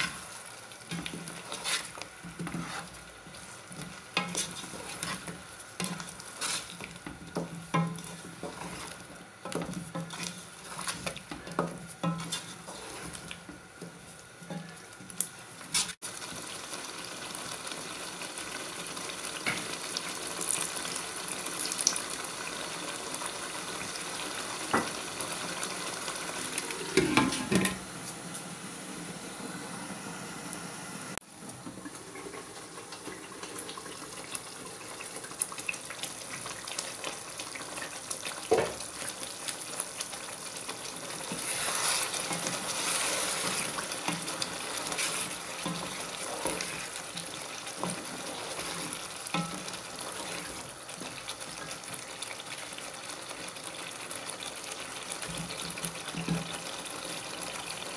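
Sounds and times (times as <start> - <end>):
wooden spatula stirring and scraping: 0.0 - 14.9, 15.7 - 16.0, 40.7 - 51.2
masala frying sizzle: 0.0 - 57.9.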